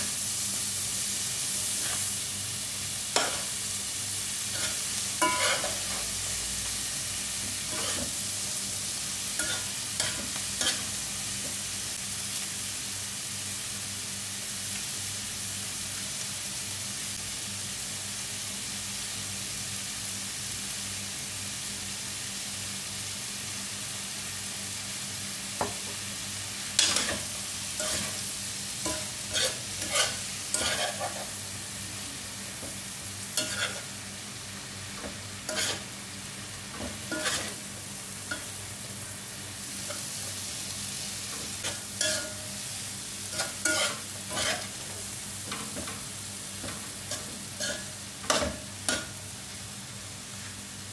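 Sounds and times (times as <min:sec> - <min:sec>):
vegetables sizzling in oil: 0:00.0 - 0:50.9
metal spoon scraping a pan: 0:01.8 - 0:02.1, 0:03.2 - 0:03.6, 0:04.5 - 0:06.1, 0:07.7 - 0:08.2, 0:09.4 - 0:10.9, 0:26.8 - 0:28.2, 0:28.8 - 0:31.4, 0:33.4 - 0:33.9, 0:35.0 - 0:35.9, 0:36.8 - 0:37.7, 0:41.3 - 0:42.6, 0:43.3 - 0:46.0, 0:46.6 - 0:49.2.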